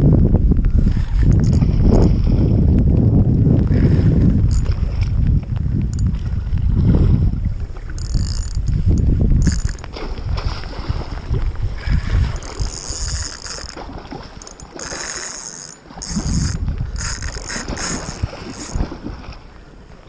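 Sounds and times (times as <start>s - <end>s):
wind buffeting microphone: 0.0s - 20.0s
fishing reel whirring: 0.8s - 2.3s, 3.8s - 5.0s, 5.9s - 6.2s, 7.8s - 9.9s, 11.9s - 19.0s.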